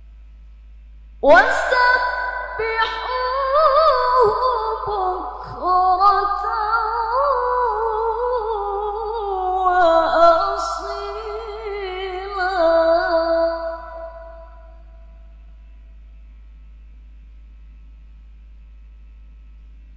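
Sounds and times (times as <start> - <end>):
woman reciting melodically: 1.2 - 14.8.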